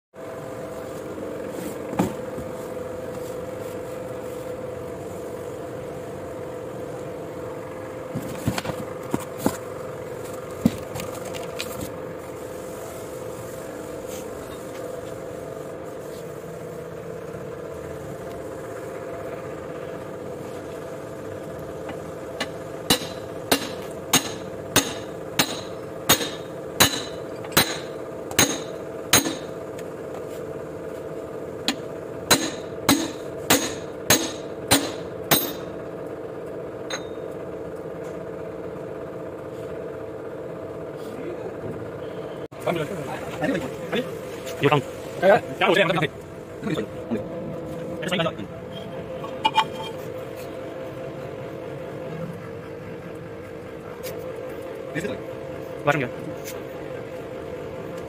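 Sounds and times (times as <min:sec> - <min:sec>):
mechanical hum: 0:00.2 - 0:58.0
hammer striking steel plate: 0:22.9 - 0:29.5, 0:32.3 - 0:35.6.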